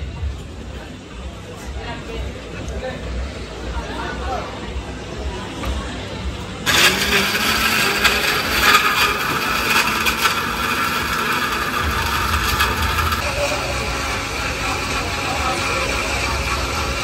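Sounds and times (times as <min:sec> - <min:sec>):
electric blender running: 0:06.7 - 0:17.0.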